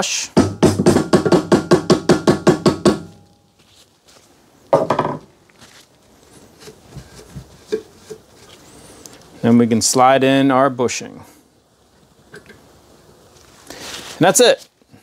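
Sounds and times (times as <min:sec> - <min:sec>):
loud knock: 0:00.4 - 0:03.3, 0:04.8 - 0:05.3.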